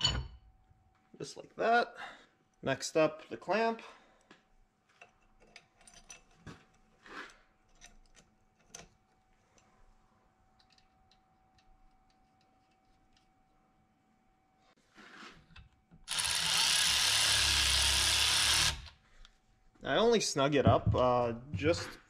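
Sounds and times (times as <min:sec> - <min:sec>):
metal clamp clicks and clinks: 0:05.0 - 0:06.4.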